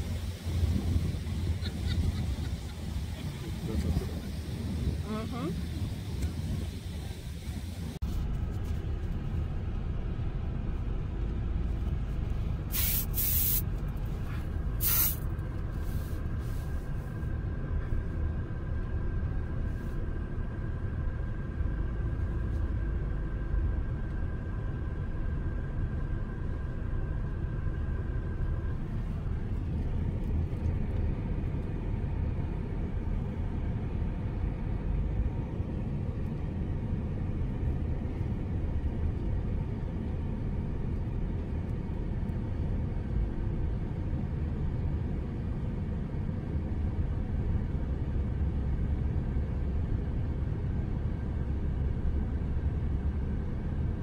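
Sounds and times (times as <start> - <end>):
car road noise rumble: 0.0 - 54.0
short hissing bursts: 12.7 - 13.6, 14.8 - 15.2.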